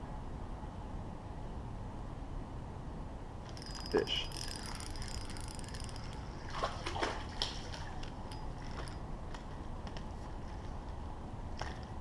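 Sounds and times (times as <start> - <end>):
fish splashing at water surface: 4.5 - 9.0.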